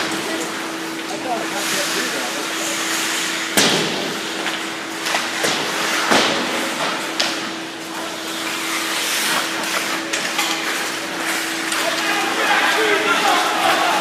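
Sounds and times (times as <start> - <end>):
steady hum: 0.0 - 14.0
skates scraping on ice: 5.2 - 14.0.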